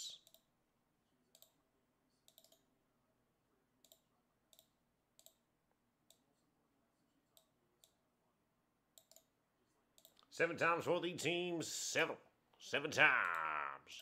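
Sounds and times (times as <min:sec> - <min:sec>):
computer mouse clicks: 0:00.2 - 0:00.5, 0:01.3 - 0:01.6, 0:02.2 - 0:02.7, 0:03.8 - 0:05.4, 0:07.4 - 0:08.0, 0:09.0 - 0:09.3, 0:10.0 - 0:10.3.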